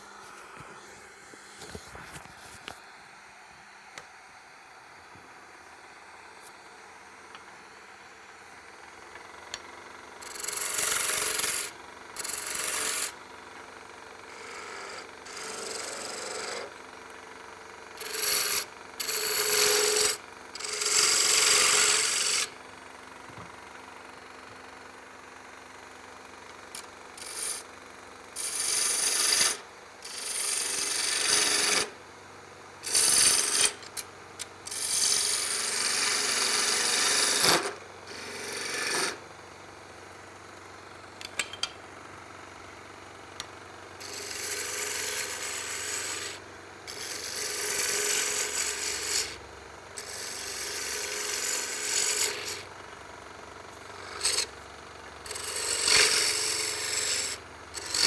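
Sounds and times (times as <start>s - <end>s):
lathe humming: 10.2s - 13.2s, 14.3s - 16.7s, 18.0s - 22.6s, 28.4s - 31.8s, 34.7s - 39.2s, 44.0s - 49.4s, 50.0s - 52.6s, 53.7s - 54.6s, 55.2s - 58.0s
lathe tool cutting wood: 10.2s - 13.2s, 14.4s - 16.7s, 18.0s - 22.5s, 27.2s - 27.6s, 28.4s - 31.9s, 32.8s - 33.8s, 34.7s - 39.2s, 44.0s - 49.4s, 50.0s - 52.6s, 54.0s - 54.5s, 55.2s - 58.0s.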